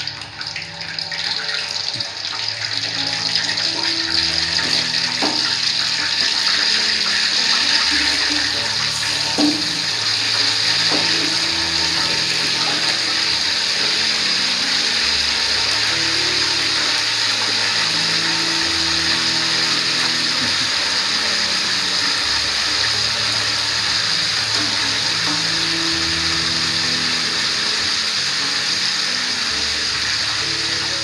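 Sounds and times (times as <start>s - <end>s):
fish sizzling in hot oil: 0.0s - 31.0s
utensil knocking against wok: 4.6s - 5.6s, 9.3s - 10.0s.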